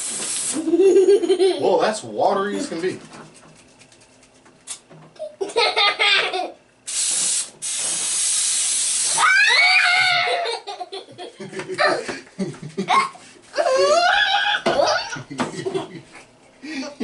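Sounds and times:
aerosol can spraying hiss: 0.0s - 0.7s, 6.9s - 9.2s.

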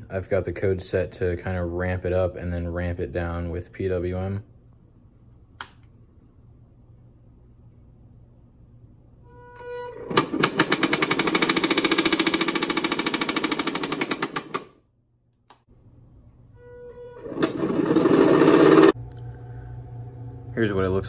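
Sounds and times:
fast even rattle: 10.5s - 14.6s.

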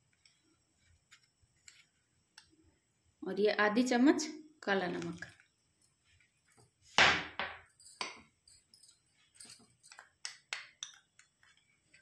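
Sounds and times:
spoon tapping steel bowls: 9.8s - 11.4s.

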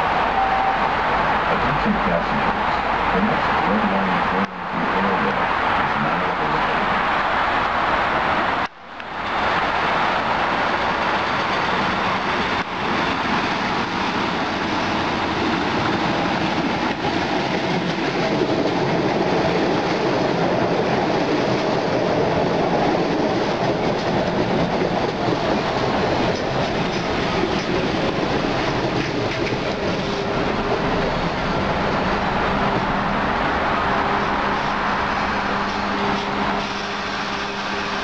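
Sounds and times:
subway train wheels on rails: 0.0s - 38.0s
train clickety-clack: 10.6s - 33.1s, 34.1s - 38.0s.

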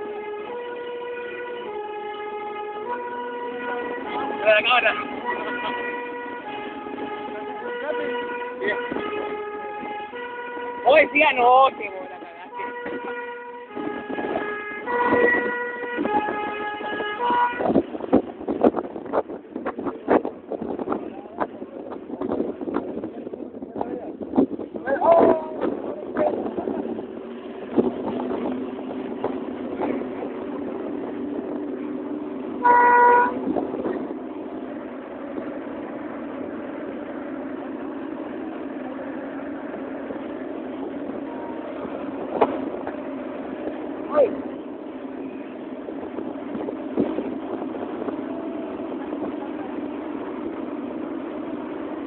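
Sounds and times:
fire engine horn blast: 0.0s - 18.5s, 26.4s - 35.2s, 38.3s - 52.0s
fire engine droning: 0.0s - 52.0s.

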